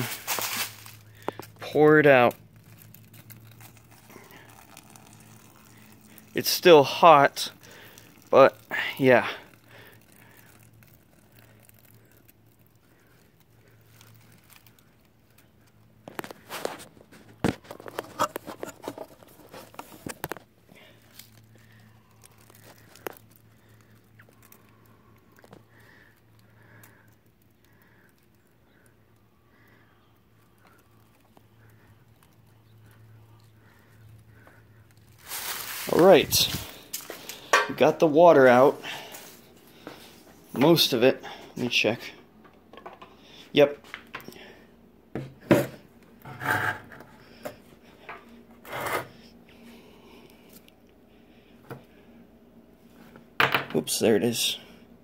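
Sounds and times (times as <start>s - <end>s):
low steady hum: 0.0s - 55.0s
water dripping and trickling: 2.6s - 6.5s.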